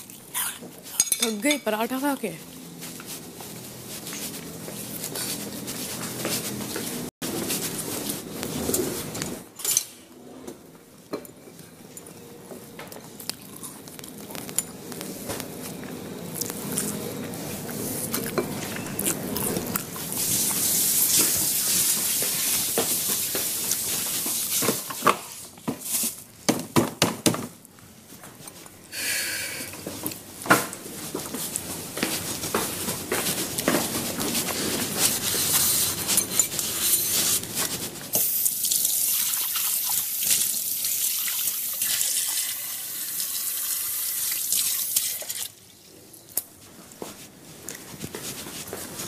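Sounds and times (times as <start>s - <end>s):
kitchen utensils and dishes clinking: 0.4s - 2.3s, 8.5s - 12.2s, 33.8s - 40.5s.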